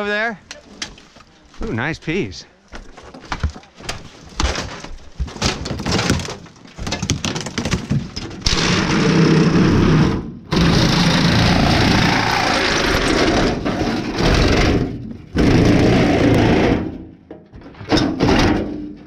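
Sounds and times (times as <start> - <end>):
debris cracking and clattering: 2.8 - 8.8
power tool running: 8.5 - 13.4.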